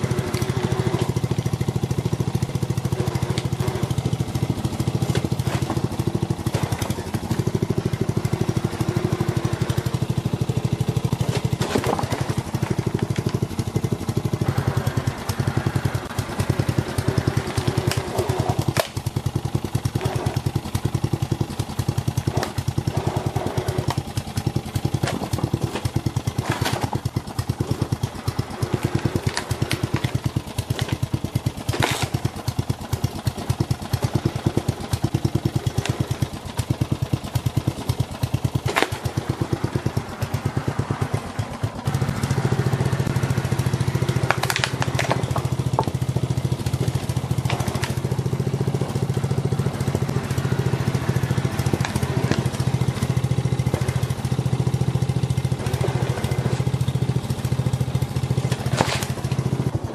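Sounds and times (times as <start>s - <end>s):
lawn mower engine running: 0.0s - 59.9s
plastic cracking and snapping: 28.8s - 32.4s, 44.1s - 46.0s.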